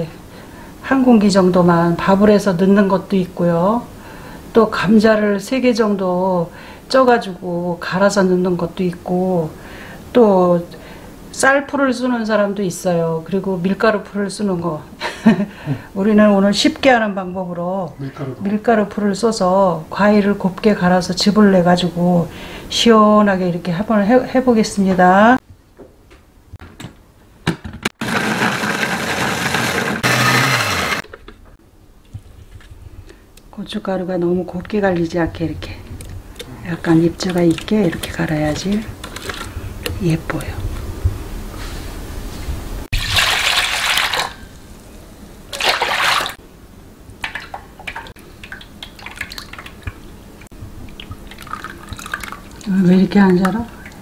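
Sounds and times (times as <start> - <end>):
blender motor grinding: 28.0 - 31.0
liquid splashing into metal bowl: 42.9 - 44.4, 47.2 - 50.0
liquid dripping through sieve: 47.2 - 50.0, 50.9 - 52.7.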